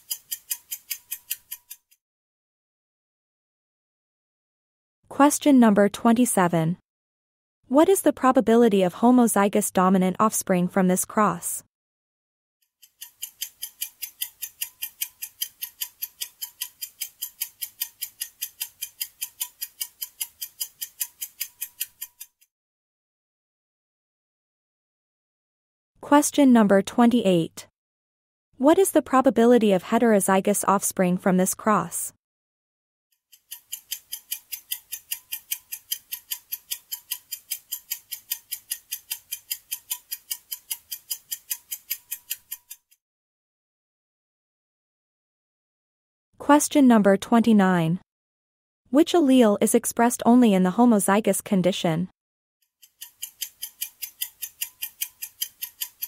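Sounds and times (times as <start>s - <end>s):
ticking countdown timer: 0.0s - 1.9s, 12.8s - 22.5s, 33.3s - 43.0s, 46.6s - 48.0s, 52.8s - 56.0s.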